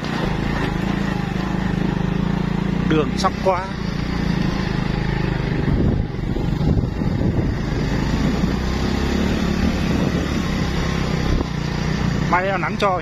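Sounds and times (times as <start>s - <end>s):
rough road noise: 0.0s - 13.0s
small motorcycle engine running: 0.0s - 13.0s
wind noise: 5.4s - 11.7s.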